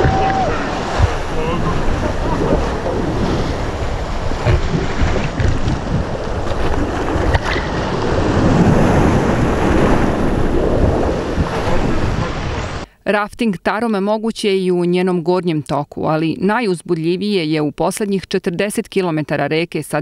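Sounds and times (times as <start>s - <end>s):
river water rushing: 0.0s - 12.8s
water splashes: 0.0s - 12.8s
wind buffeting microphone: 0.0s - 12.9s.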